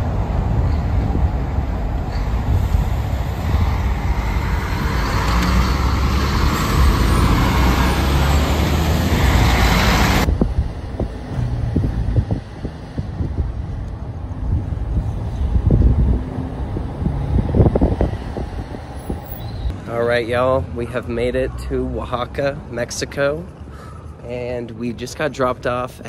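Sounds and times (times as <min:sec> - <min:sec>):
road hiss: 0:00.0 - 0:11.0
large vehicle passing: 0:00.0 - 0:22.4
engine and tyre rumble: 0:00.0 - 0:26.0.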